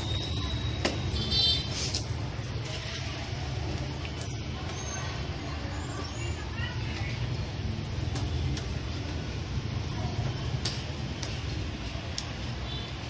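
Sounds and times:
metal chain clicking and ringing: 0.0 - 5.4, 7.2 - 11.0.

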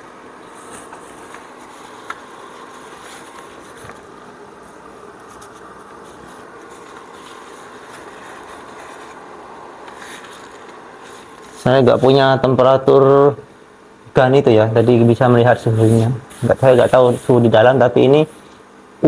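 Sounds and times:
clothes dryer blower whirring: 0.0 - 12.3.

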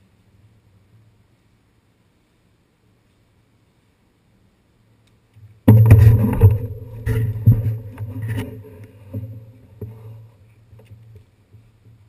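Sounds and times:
knocks and rattles: 5.7 - 10.0.

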